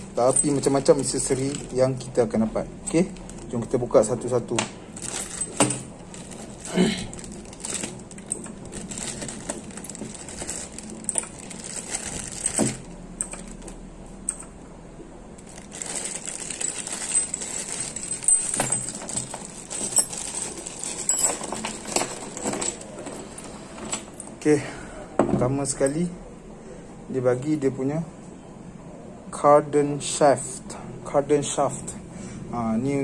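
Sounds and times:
metal accessories clinking: 0.0s - 14.6s, 15.4s - 24.4s
plastic bags crinkling: 2.9s - 3.9s, 4.9s - 13.7s, 15.4s - 23.1s.

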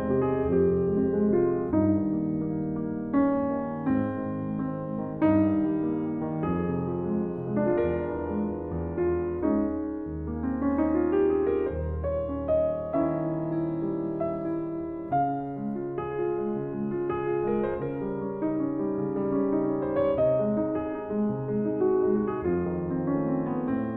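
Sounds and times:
slow solo piano piece: 0.0s - 23.9s.

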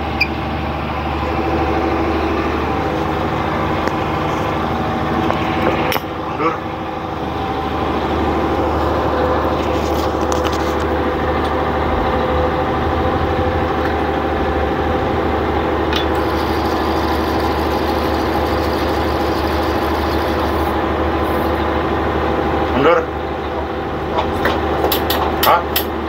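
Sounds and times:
boat engine running: 0.0s - 26.0s.

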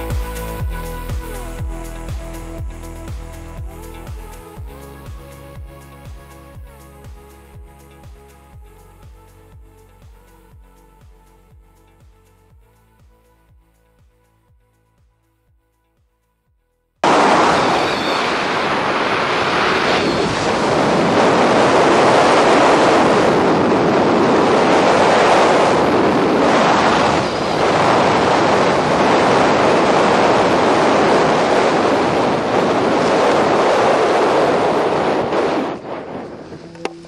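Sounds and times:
wind roar buffeting microphone: 17.0s - 37.0s.

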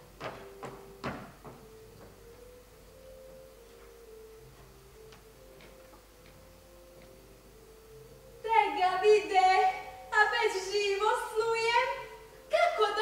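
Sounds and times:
footsteps on stage floor: 0.0s - 7.2s
soft held pure tones: 0.0s - 13.0s.

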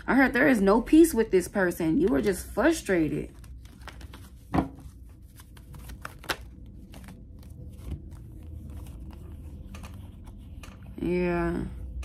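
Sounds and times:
card tapping: 3.3s - 7.2s.

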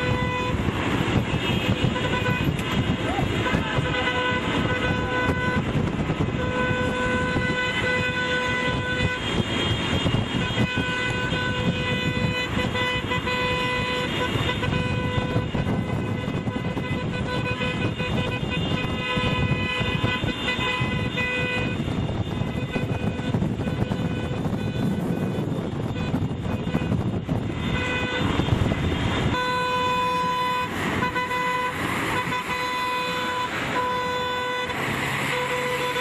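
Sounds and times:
car horns honking: 0.0s - 36.0s
road and wind noise: 0.0s - 36.0s.

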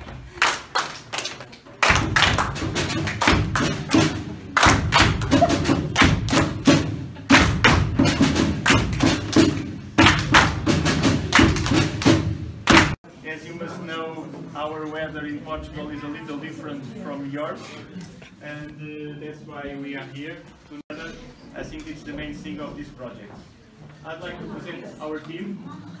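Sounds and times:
group clapping in rhythm: 0.0s - 13.0s.

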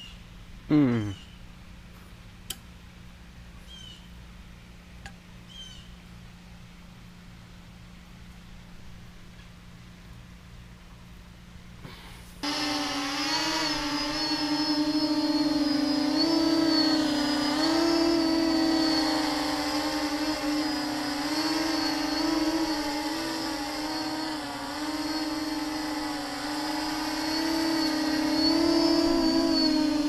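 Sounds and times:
quadcopter propellers buzzing: 12.4s - 30.0s.

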